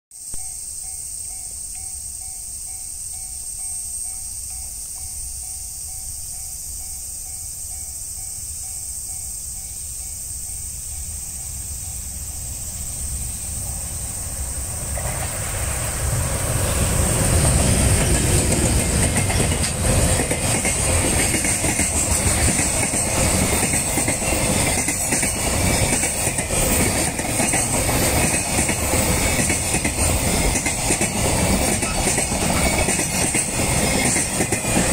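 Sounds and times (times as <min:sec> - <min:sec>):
freight train passing: 0:00.3 - 0:34.9
wheels clattering over rail joints: 0:14.3 - 0:34.9.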